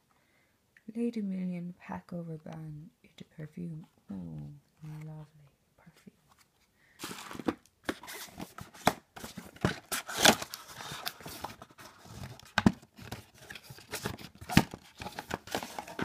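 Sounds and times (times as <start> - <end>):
cardboard rustling and tearing: 7.0 - 16.0.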